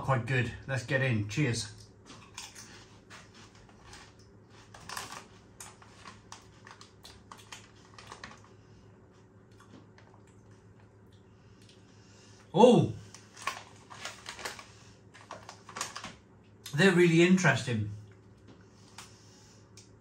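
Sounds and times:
crisps crunching in mouth: 0:01.8 - 0:08.6.

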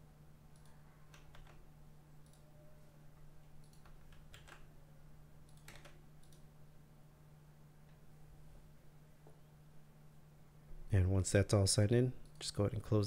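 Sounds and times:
faint low hum: 0:00.0 - 0:13.0
keyboard keystrokes: 0:00.5 - 0:01.6, 0:03.6 - 0:04.7, 0:05.5 - 0:06.4.

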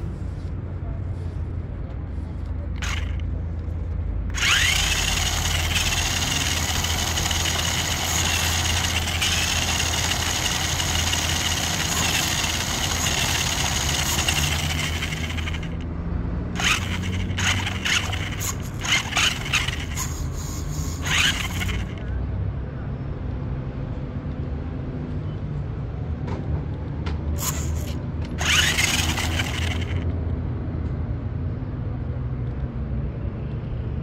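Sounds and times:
toy car electric motor whining: 0:02.8 - 0:03.3, 0:04.3 - 0:15.8, 0:16.6 - 0:22.1, 0:27.4 - 0:30.1.

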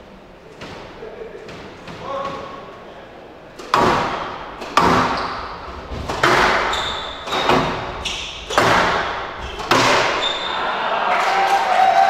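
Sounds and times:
squash ball knocks echoing: 0:03.6 - 0:10.4.

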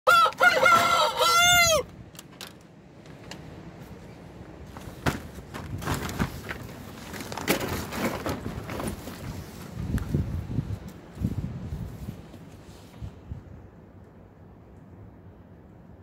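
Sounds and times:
rooster crowing: 0:00.1 - 0:01.9
rustling: 0:04.7 - 0:13.0.

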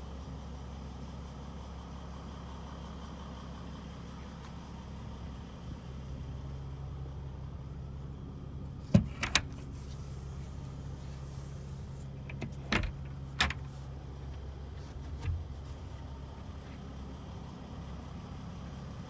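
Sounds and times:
steady low hum: 0:03.2 - 0:18.3.

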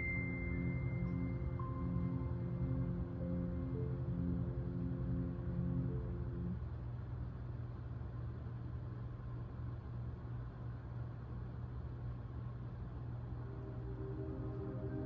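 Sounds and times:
soft ambient music from tv: 0:00.0 - 0:07.8, 0:12.3 - 0:15.0
faint background hiss: 0:00.0 - 0:15.0
steady low hum: 0:00.0 - 0:15.0.

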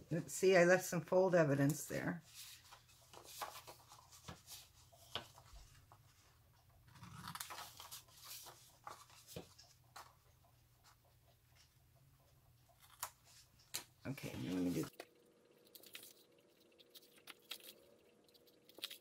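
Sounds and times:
paper rustling: 0:02.3 - 0:06.3, 0:06.9 - 0:10.2.

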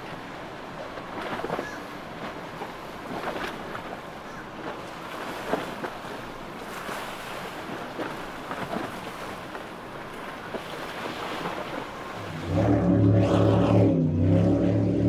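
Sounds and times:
motorboat running through chop: 0:00.0 - 0:15.0
surf over open water: 0:00.0 - 0:15.0
wind: 0:00.0 - 0:15.0
sharp water splashes: 0:01.0 - 0:15.0.

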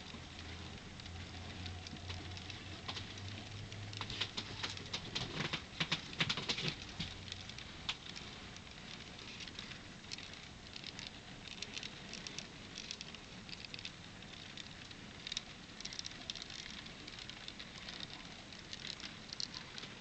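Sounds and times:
model train wheels clicking and rattling: 0:00.0 - 0:20.0.

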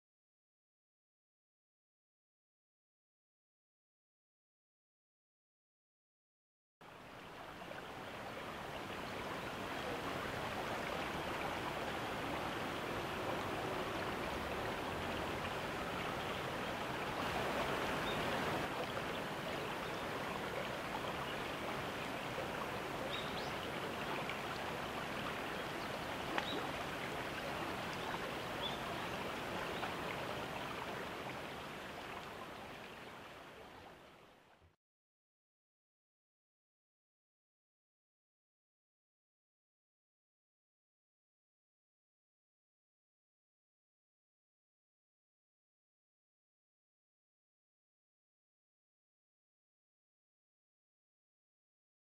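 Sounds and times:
river water flowing: 0:06.8 - 0:34.8.

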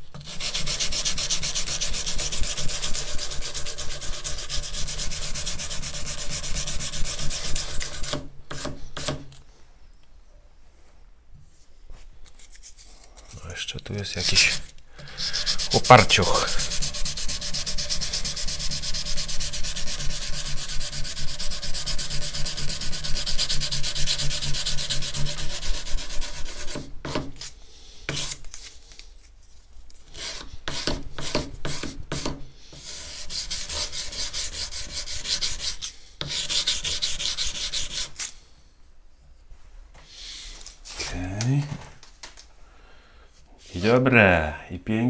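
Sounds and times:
sandpaper rubbing on steel: 0:00.2 - 0:09.1, 0:14.2 - 0:28.5, 0:30.1 - 0:38.3.

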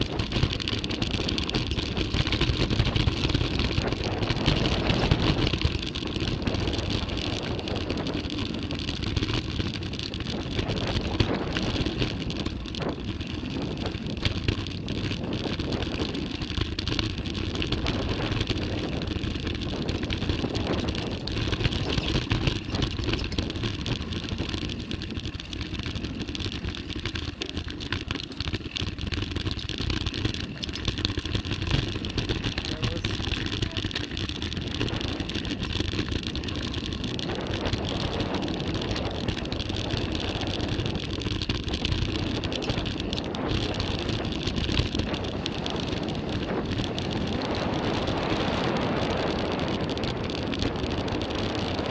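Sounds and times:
bike rattles and knocks: 0:00.0 - 0:51.9
tyres on dirt and gravel: 0:00.0 - 0:51.9
wind rumble on microphone: 0:00.0 - 0:51.9.

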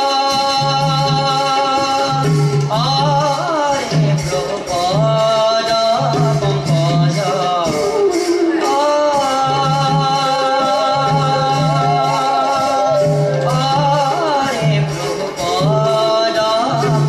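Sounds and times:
drum beating: 0:00.0 - 0:17.0
hand cymbals striking: 0:00.0 - 0:17.0
man singing: 0:00.0 - 0:17.0
bamboo flute: 0:06.9 - 0:15.0.

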